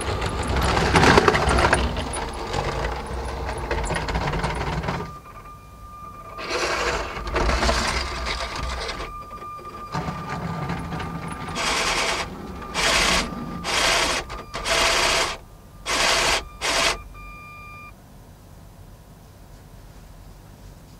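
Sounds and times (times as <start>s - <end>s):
plastic wheels rattling on track: 0.0s - 5.2s, 6.2s - 17.0s
toy train motor running: 0.0s - 5.2s, 6.3s - 9.1s, 10.0s - 17.0s.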